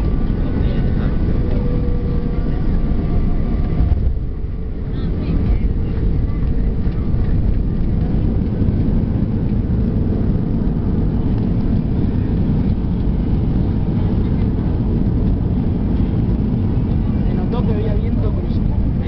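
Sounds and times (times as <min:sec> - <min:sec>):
jet cabin rumble on runway: 0:00.0 - 0:19.0.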